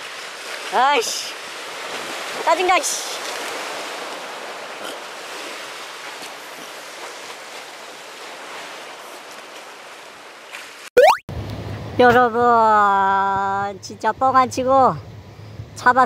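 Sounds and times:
waves breaking on rocks: 0.0s - 10.9s.

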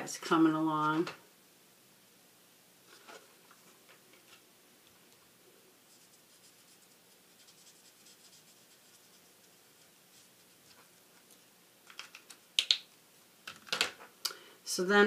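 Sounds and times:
pen scratching on card: 5.9s - 10.9s.

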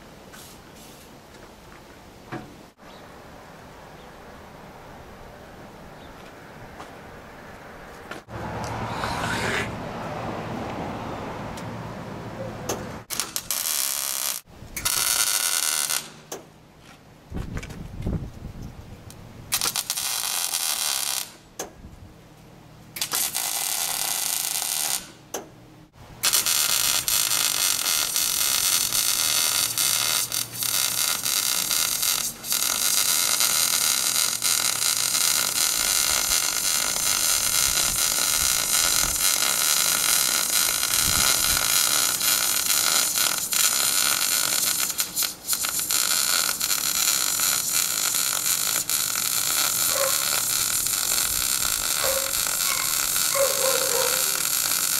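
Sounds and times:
welder arc buzzing: 13.1s - 16.2s, 19.5s - 21.4s, 23.0s - 25.2s, 26.2s - 54.9s.

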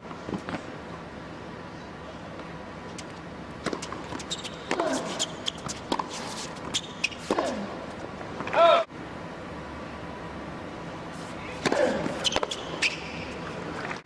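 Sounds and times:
tennis ball bouncing: 2.4s - 7.7s, 11.6s - 13.0s
racquet striking tennis ball: 3.6s - 7.7s, 11.6s - 13.0s.

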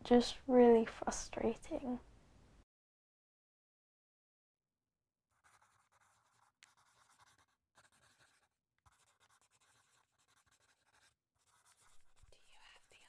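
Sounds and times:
pencil scratching on paper: 5.3s - 13.0s.

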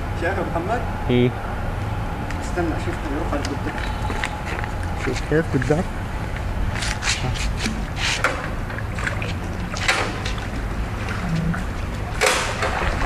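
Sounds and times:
water splashing around boat: 6.8s - 13.0s.

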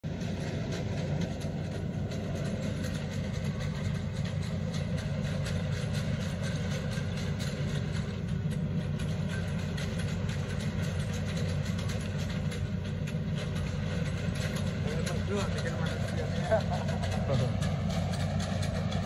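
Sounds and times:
diesel engine droning: 0.0s - 19.0s.

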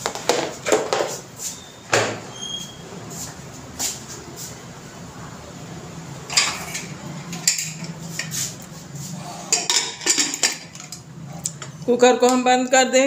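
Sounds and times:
metal kitchenware clinking: 6.3s - 8.4s, 9.5s - 11.0s.

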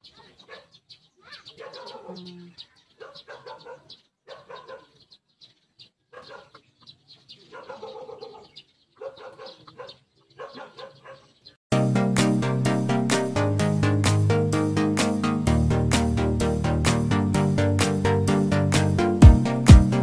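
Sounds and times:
loud electronic music: 11.7s - 20.0s.

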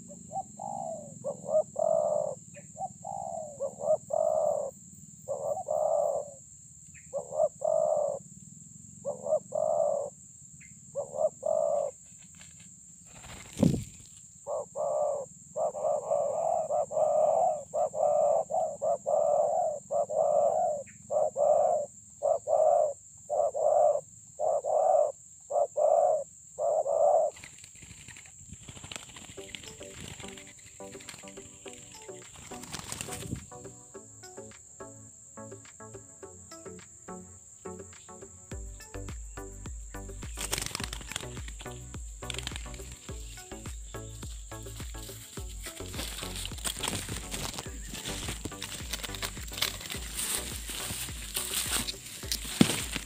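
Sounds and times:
doves cooing: 0.0s - 6.4s, 7.1s - 8.3s, 9.0s - 10.2s, 10.9s - 12.5s, 13.1s - 34.4s, 39.8s - 53.0s
wings fluttering: 12.0s - 14.4s, 27.1s - 33.6s, 40.2s - 53.0s.

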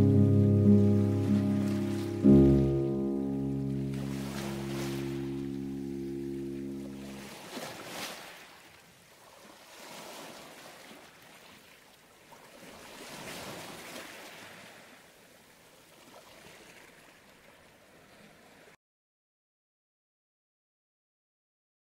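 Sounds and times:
small waves washing ashore: 1.0s - 18.8s.

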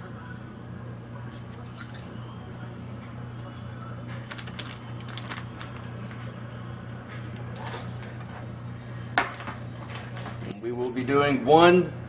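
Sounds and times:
steady low hum: 0.0s - 12.0s
plastic bag crinkling: 4.3s - 6.2s.

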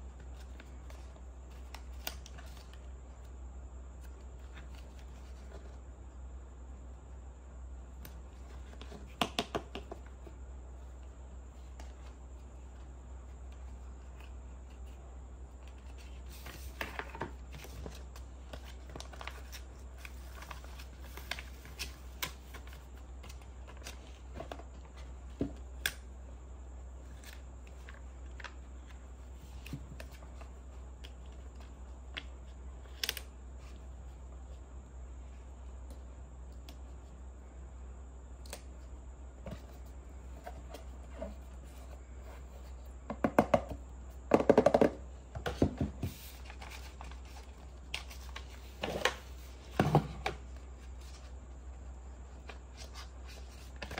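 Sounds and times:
plastic box knocks: 43.1s - 46.0s.

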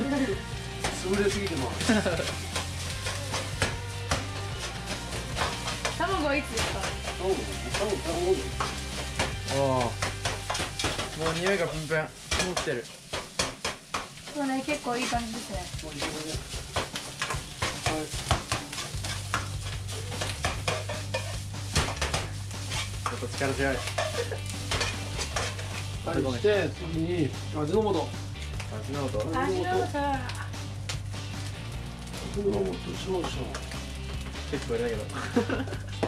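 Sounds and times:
rice sizzling in frying pan: 0.0s - 36.0s
spatula scraping and knocking pan: 0.1s - 26.4s.

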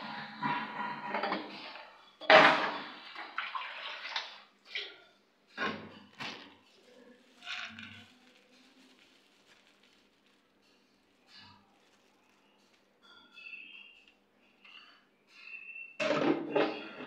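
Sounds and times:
water pouring into a vessel: 2.9s - 4.9s.

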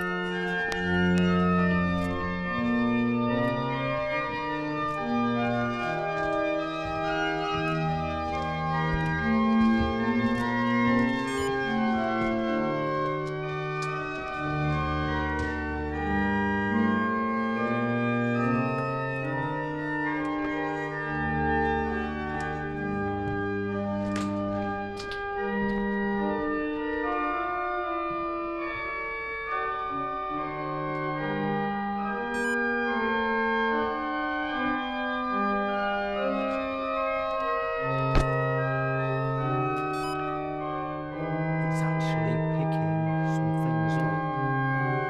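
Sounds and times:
pipe organ chords: 0.0s - 45.0s.

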